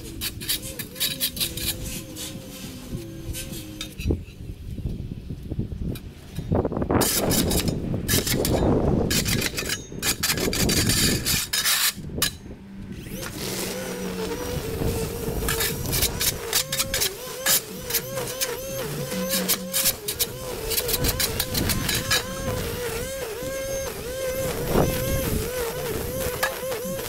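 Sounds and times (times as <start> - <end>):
electric motor whine: 0.0 - 5.0, 12.1 - 27.0.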